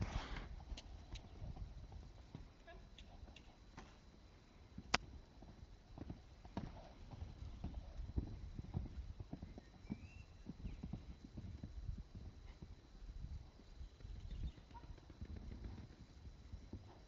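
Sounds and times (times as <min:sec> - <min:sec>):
horse hooves thudding on sand: 0:04.8 - 0:12.8, 0:13.4 - 0:17.0.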